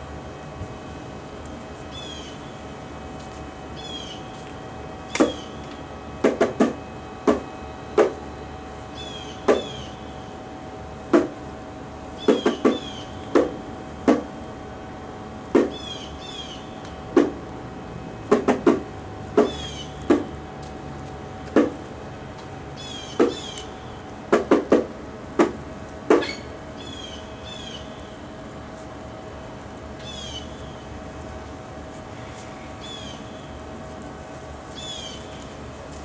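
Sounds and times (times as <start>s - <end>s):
steady hum: 0.0s - 36.0s
sharp slaps: 8.0s - 8.2s, 11.1s - 11.3s, 15.6s - 15.8s, 17.2s - 17.4s, 18.3s - 18.8s, 19.4s - 20.3s, 21.5s - 21.8s.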